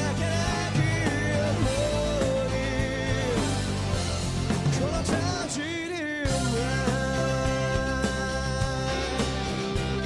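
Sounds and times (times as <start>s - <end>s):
rock band playing live: 0.0s - 10.0s.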